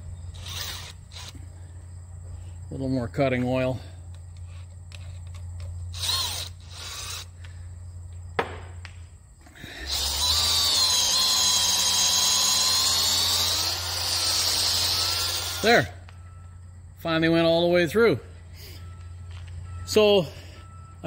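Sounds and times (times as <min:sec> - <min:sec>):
drill whining: 0:00.3 - 0:01.5, 0:05.9 - 0:07.5, 0:09.7 - 0:15.9.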